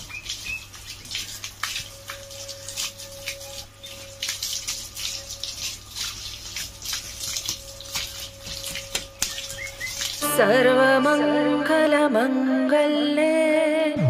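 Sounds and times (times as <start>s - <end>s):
hose water spraying on bicycle: 0.0s - 10.2s.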